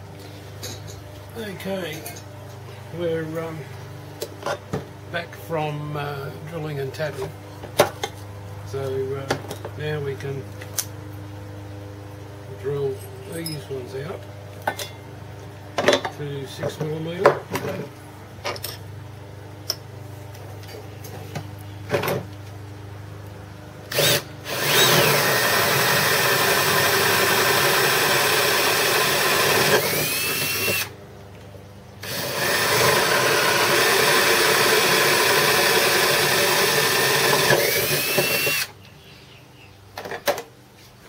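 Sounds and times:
electric drill boring metal: 23.9s - 31.0s, 32.0s - 38.8s.

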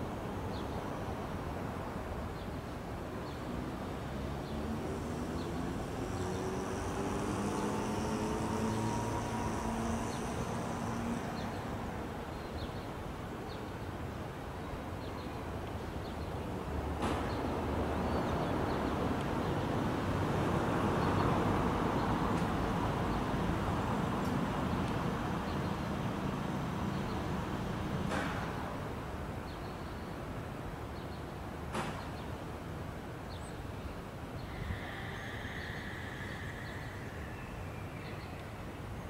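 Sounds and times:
outdoor rumble: 3.9s - 12.5s
engine hum rising in pitch: 4.1s - 12.3s.

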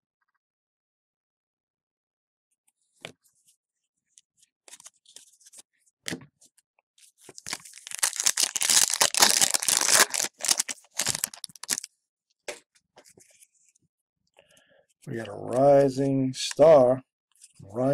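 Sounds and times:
wrapper tearing and crinkling: 7.3s - 11.9s.

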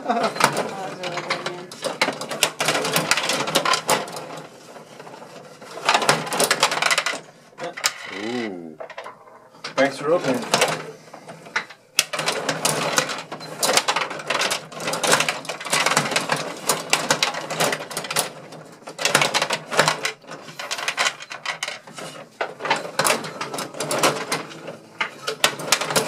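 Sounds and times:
plastic players clacking: 0.0s - 26.0s
rods sliding and spinning: 0.2s - 18.4s.

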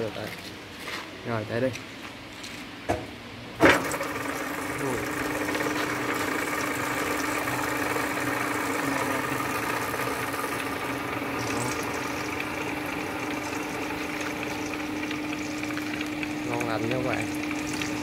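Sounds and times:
lathe gearbox humming: 3.6s - 18.0s.

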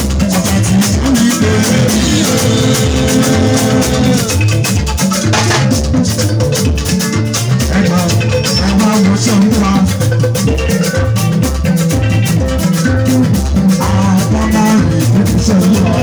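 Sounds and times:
man singing into a microphone: 0.0s - 4.6s, 7.6s - 10.0s, 13.2s - 16.0s
fast rattling percussion: 0.0s - 16.0s
live band dance music: 0.0s - 16.0s.

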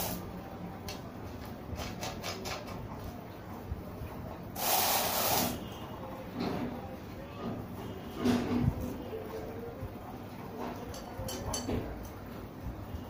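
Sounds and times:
metal rods clicking and tapping: 10.7s - 12.2s.

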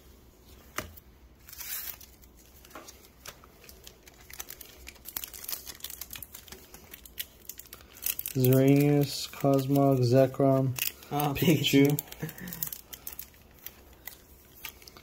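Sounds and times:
cards being handled: 0.5s - 15.0s
foil wrapper crinkling and tearing: 1.4s - 15.0s.

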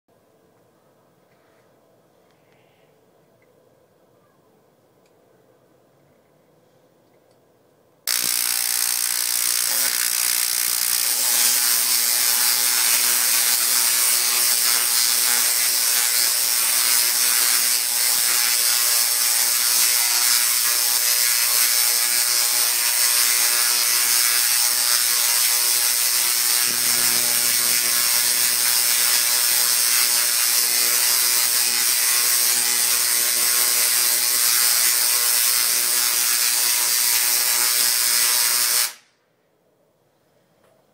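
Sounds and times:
tesla coil crackling buzz: 8.1s - 39.0s.

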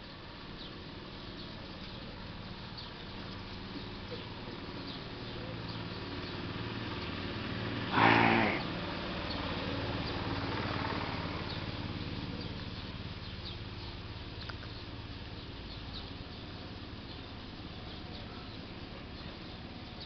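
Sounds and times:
low mechanical hum: 0.0s - 20.0s
short loud pitched cry: 7.9s - 8.6s
faint high ticks: 14.4s - 14.8s.

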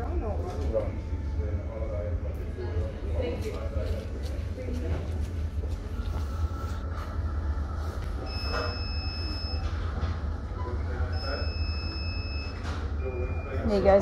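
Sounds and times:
steady low hum: 0.0s - 14.0s
long electronic beeps: 8.2s - 9.7s, 11.1s - 13.8s.

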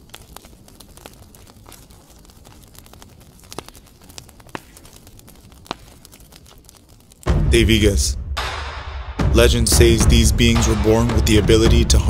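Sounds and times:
soft irregular crackling: 0.0s - 8.0s.

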